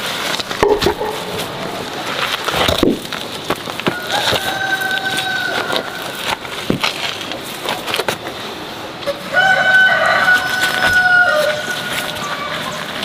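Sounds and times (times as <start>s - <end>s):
rooster crowing: 3.9s - 6.2s, 9.3s - 11.9s.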